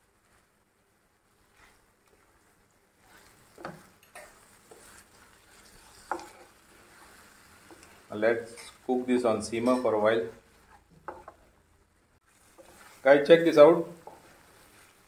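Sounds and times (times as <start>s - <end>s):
faint sizzle: 0.0s - 15.0s
spatula scraping frying pan: 3.0s - 8.9s, 12.3s - 15.0s.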